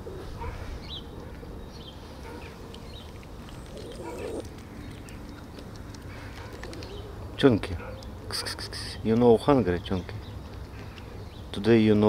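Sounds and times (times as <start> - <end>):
bird chirps: 1.7 - 5.4
cats chewing: 2.0 - 9.4, 10.3 - 11.4.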